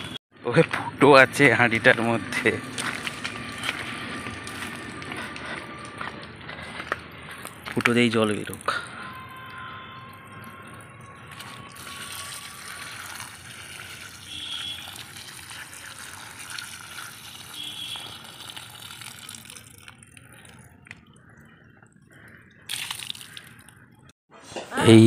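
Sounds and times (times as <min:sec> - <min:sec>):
water splashing onto soil: 0:11.3 - 0:20.6, 0:22.7 - 0:23.8.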